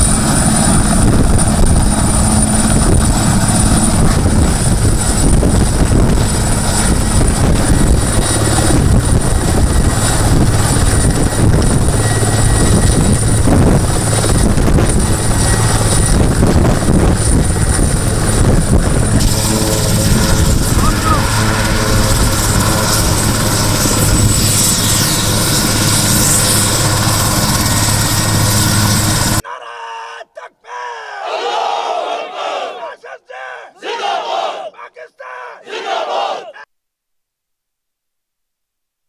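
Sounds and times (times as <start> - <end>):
helicopter rotor noise: 0.0 - 29.4
high turbine whine: 0.0 - 29.4.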